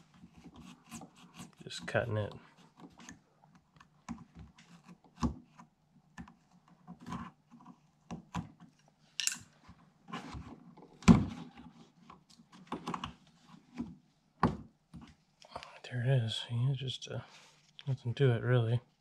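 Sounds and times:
light clicks and rubs of handling: 17.3 - 18.4.

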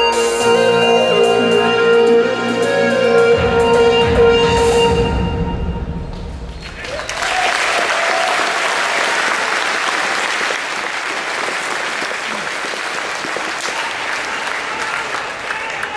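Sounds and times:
soundtrack music: 0.0 - 6.8
large audience applauding: 6.6 - 15.9.

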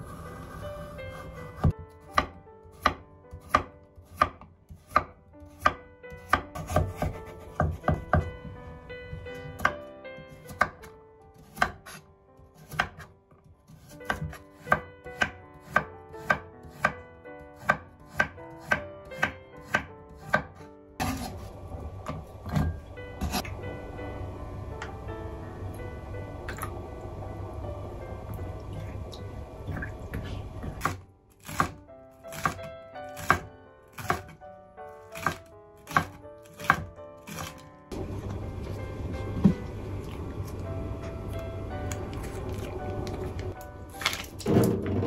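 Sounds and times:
knife chopping on wooden board: 1.6 - 8.3, 11.5 - 12.0, 12.6 - 13.1, 13.7 - 17.0, 17.6 - 21.4, 30.8 - 32.6, 33.2 - 34.4, 35.2 - 37.6.

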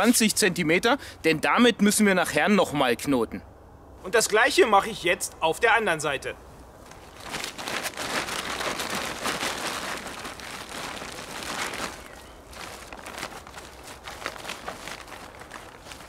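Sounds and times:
dry leaves crackling: 6.8 - 16.0
tarp rustling and crinkling: 6.8 - 16.0.

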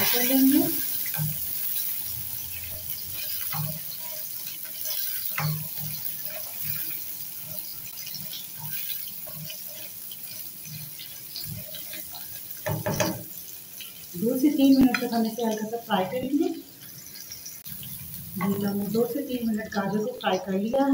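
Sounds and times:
carrots sizzling in hot oil: 0.0 - 20.9
spatula scraping and tapping pan: 2.6 - 14.1, 14.7 - 15.5.

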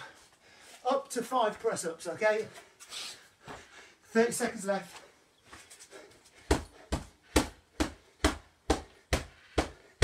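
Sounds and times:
gloved fists pounding punch bag: 6.5 - 10.0.

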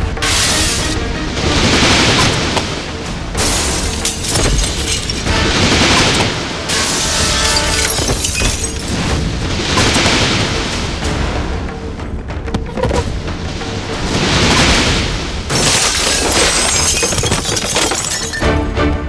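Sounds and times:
dramatic background score: 0.0 - 17.2, 18.3 - 19.0.

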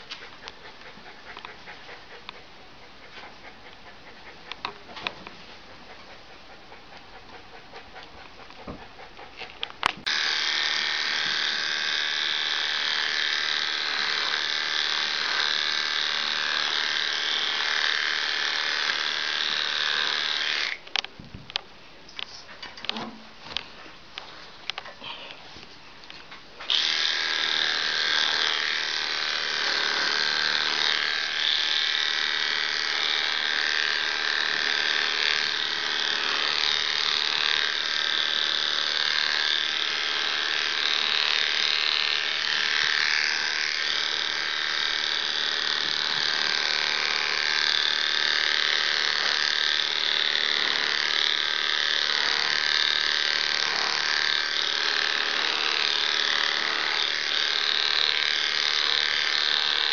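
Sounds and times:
electric clippers buzzing: 9.5 - 21.1, 26.6 - 59.9.

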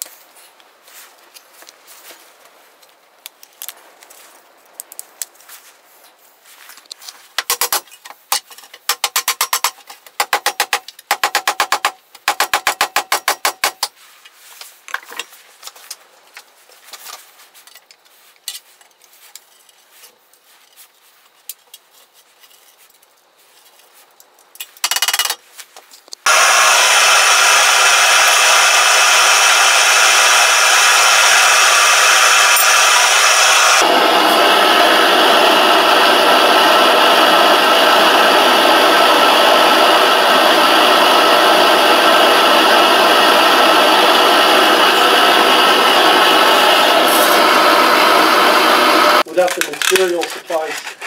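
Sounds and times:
gas forge burner hissing: 26.3 - 50.8.

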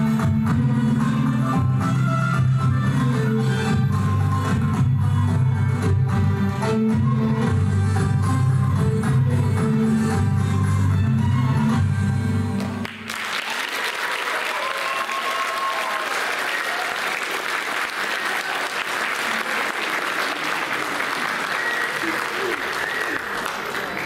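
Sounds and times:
audience applause: 12.8 - 24.0.

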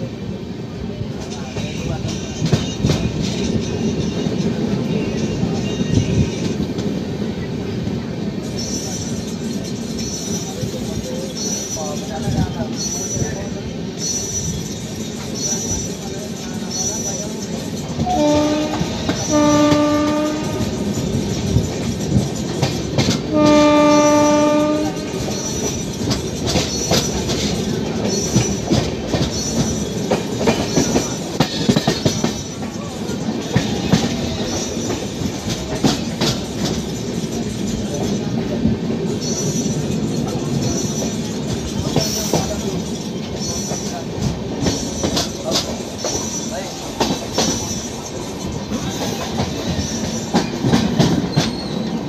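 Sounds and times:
train coach rattling over rail joints: 0.0 - 52.0
locomotive horn blasts: 18.2 - 20.9, 23.3 - 25.3.

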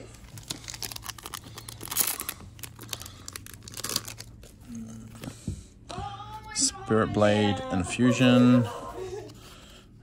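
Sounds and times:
foil wrapper tearing and crinkling: 0.0 - 4.7.

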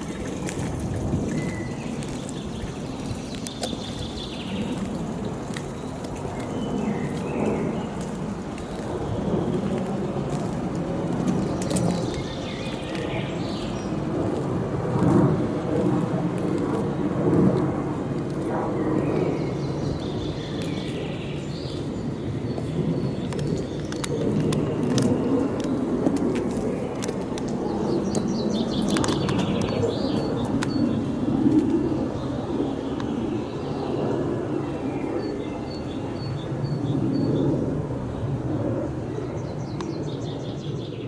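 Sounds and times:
birds chirping: 0.0 - 14.3, 18.6 - 37.6.

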